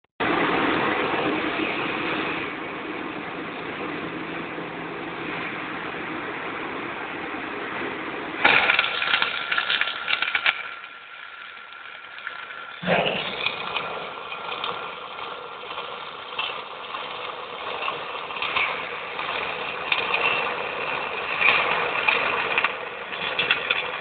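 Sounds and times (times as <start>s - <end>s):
machine hum: 0.2s - 24.0s
welding arc crackling: 8.4s - 24.0s.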